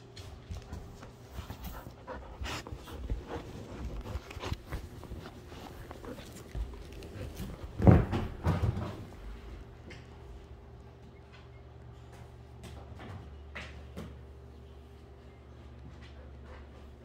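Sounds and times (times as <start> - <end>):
dog panting: 0.2 - 7.8, 15.9 - 17.0
rustling and bumps: 2.7 - 9.7.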